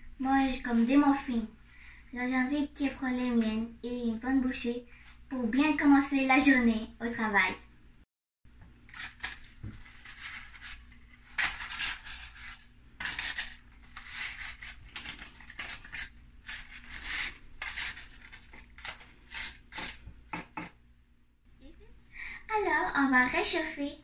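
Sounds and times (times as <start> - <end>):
paper liners rustling and crinkling: 8.8 - 20.6.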